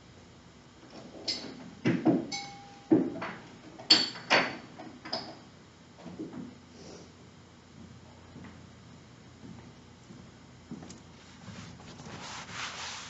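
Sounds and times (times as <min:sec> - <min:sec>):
knocks and clicks in a room: 0:00.8 - 0:06.6, 0:07.7 - 0:11.1.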